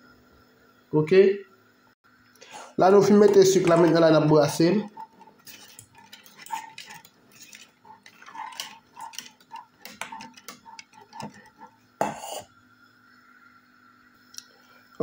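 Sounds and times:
whisk scraping a saucepan: 2.8s - 12.5s
whisk knocking a pan: 3.0s - 12.4s.

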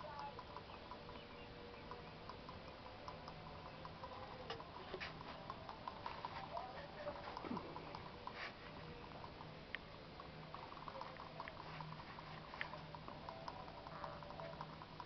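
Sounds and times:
rabbits pattering in wire cage: 0.0s - 15.0s
sharp clicks: 0.0s - 15.0s.

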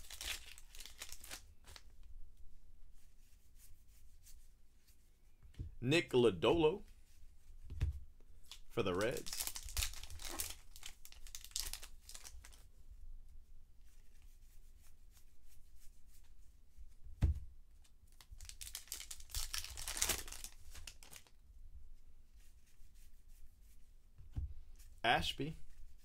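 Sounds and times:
card pack wrappers crinkling: 0.0s - 1.8s, 8.5s - 12.6s, 18.2s - 21.3s
low thump: 17.2s - 17.5s.

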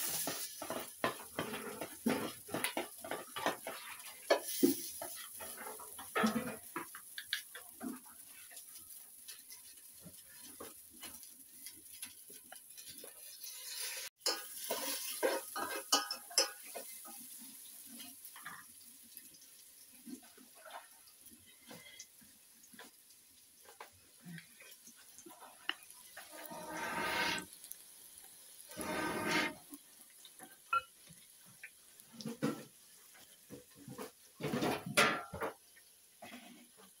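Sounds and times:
utensil clinking metal pot: 14.2s - 16.9s.

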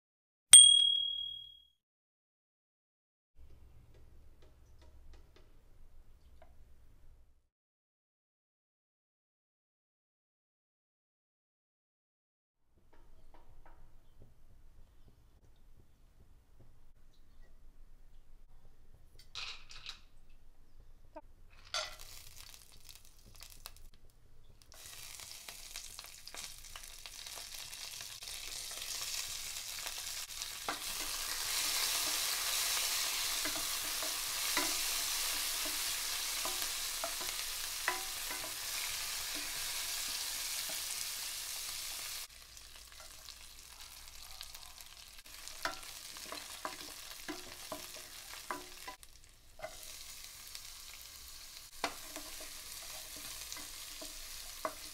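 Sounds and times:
food sizzling in hot oil: 21.7s - 23.9s, 24.7s - 54.9s
spatula tapping pan: 30.6s - 39.7s, 45.4s - 49.9s, 51.7s - 54.9s.

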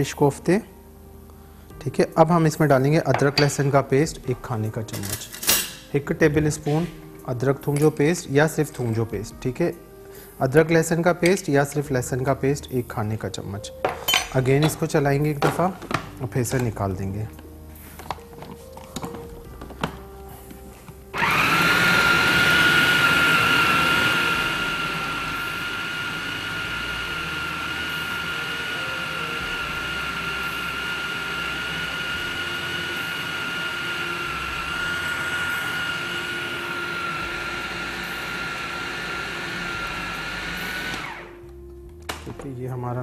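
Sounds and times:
food processor whining: 21.2s - 41.4s.

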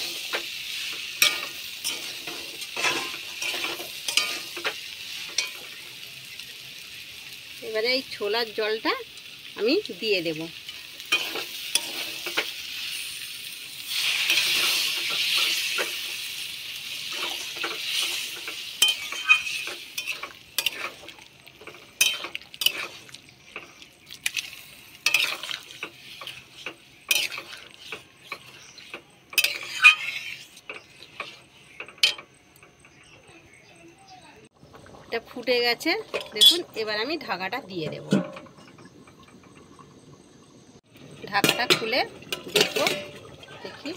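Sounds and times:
metal spatula scraping pan: 0.0s - 5.8s, 10.6s - 32.4s, 36.0s - 36.9s, 41.3s - 43.9s
water sizzling in hot pan: 0.0s - 33.0s, 34.2s - 43.9s.

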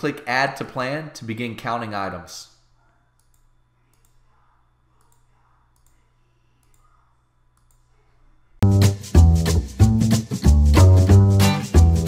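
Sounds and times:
computer mouse clicks: 3.2s - 4.2s, 5.0s - 6.0s, 6.6s - 7.9s
music with strong bass line: 8.6s - 12.0s.

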